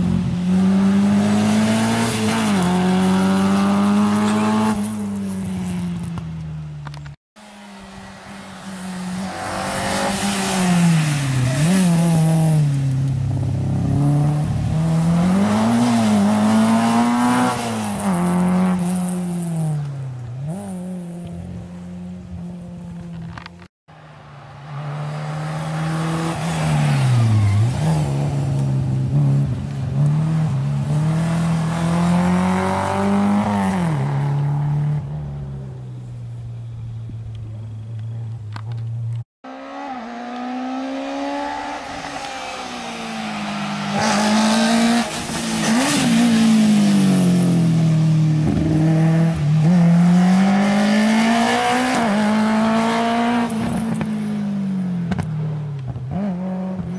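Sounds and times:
rally car engines revving hard: 0:00.0 - 0:05.1, 0:08.3 - 0:19.8, 0:24.8 - 0:35.0, 0:39.5 - 0:54.3
cars passing: 0:00.0 - 0:56.9.

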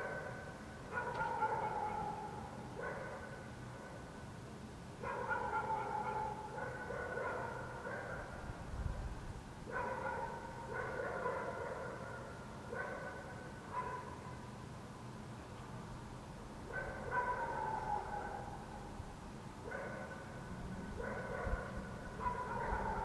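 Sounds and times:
dogs barking: 0:00.0 - 0:04.0, 0:05.0 - 0:08.4, 0:09.7 - 0:14.3, 0:16.7 - 0:18.8, 0:19.6 - 0:23.0.

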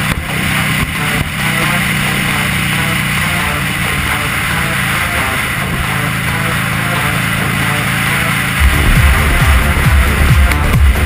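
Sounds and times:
motorcycle engine running: 0:00.0 - 0:11.0
wind and road noise: 0:00.0 - 0:11.0.

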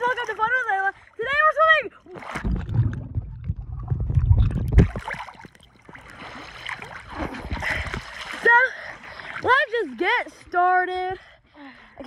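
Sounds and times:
muffled underwater wash: 0:02.1 - 0:09.6
water rushing over microphone: 0:02.1 - 0:09.6.

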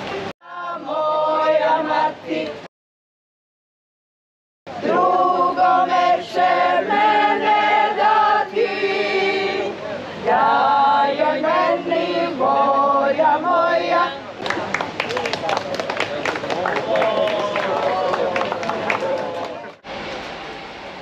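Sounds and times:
women singing folk song unaccompanied: 0:00.4 - 0:02.7, 0:04.8 - 0:14.3.

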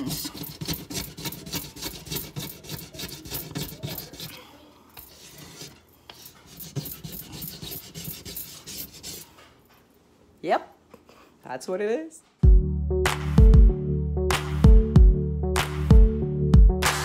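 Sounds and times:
blade scraping stove top: 0:00.0 - 0:09.7.

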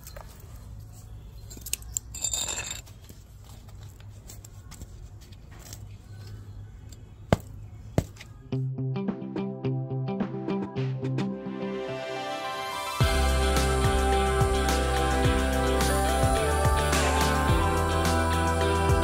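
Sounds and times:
electronic music with beat: 0:08.6 - 0:19.0.

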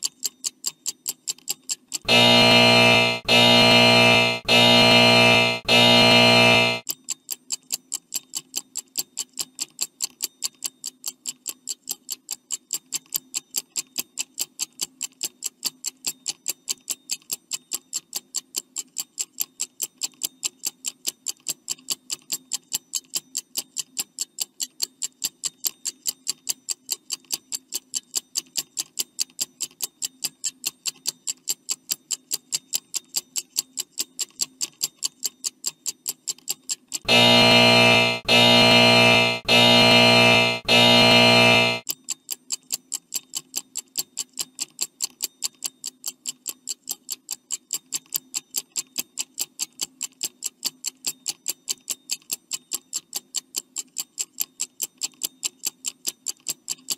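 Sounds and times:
faint steady hum: 0:02.1 - 0:06.8, 0:37.1 - 0:41.8.

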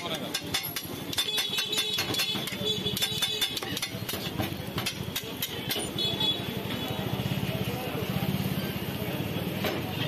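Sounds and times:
metal spatula scraping griddle: 0:00.0 - 0:06.0.

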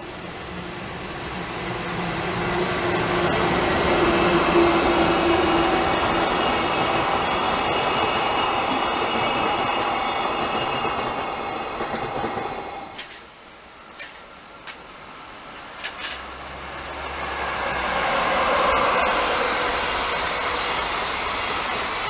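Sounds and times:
electric locomotive hum: 0:00.0 - 0:22.0
wagon wheels on rails: 0:15.6 - 0:22.0
high wheel squealing: 0:16.5 - 0:22.0.

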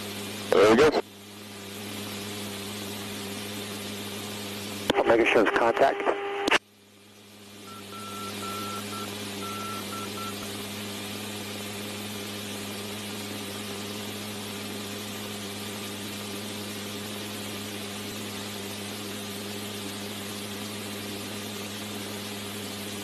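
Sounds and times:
aircraft engines droning: 0:00.0 - 0:23.0
short and long beeps: 0:07.7 - 0:10.4.

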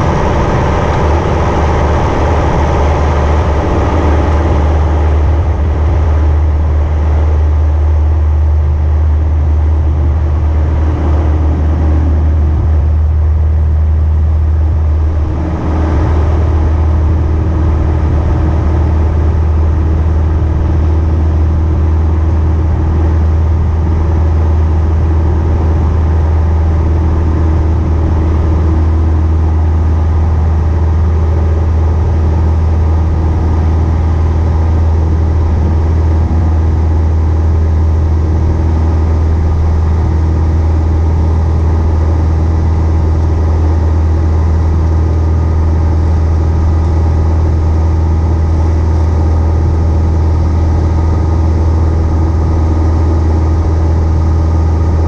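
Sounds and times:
light airplane engine drone: 0:00.0 - 0:55.0.

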